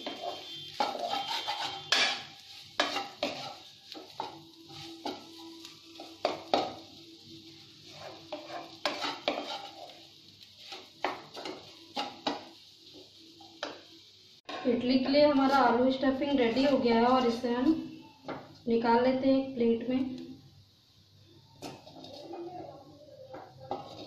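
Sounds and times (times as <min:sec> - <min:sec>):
spatula knocking and scraping pan: 0:00.0 - 0:05.4, 0:06.0 - 0:06.8, 0:07.9 - 0:10.0, 0:10.6 - 0:12.6, 0:14.5 - 0:15.6, 0:23.3 - 0:24.0
wooden spatula stirring food: 0:00.0 - 0:17.5, 0:21.5 - 0:24.0.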